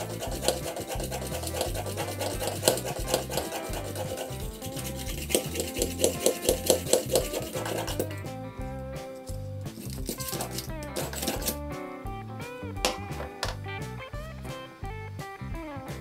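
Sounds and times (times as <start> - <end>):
hand drill scraping into board: 0.0 - 8.2, 9.7 - 11.6
background music with beat and bass: 0.0 - 16.0.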